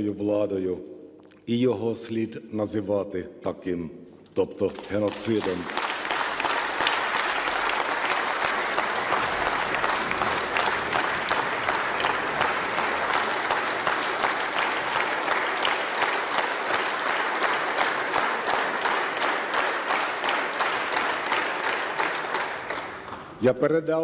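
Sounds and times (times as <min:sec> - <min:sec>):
crowd applauding rhythmically: 0:04.6 - 0:23.4.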